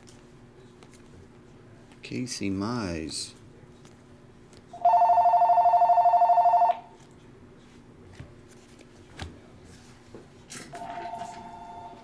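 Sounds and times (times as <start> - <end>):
telephone warbling ring: 4.8 - 6.8, 10.8 - 12.0.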